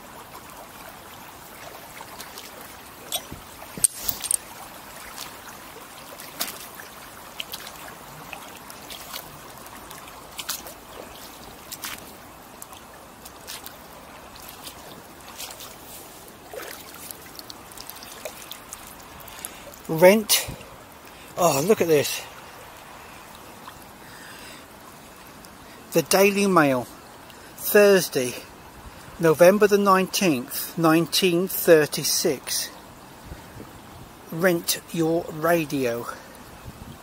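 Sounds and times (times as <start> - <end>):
river trickling over pebbles: 0.0 - 37.0
stones clacking underfoot: 3.1 - 4.5.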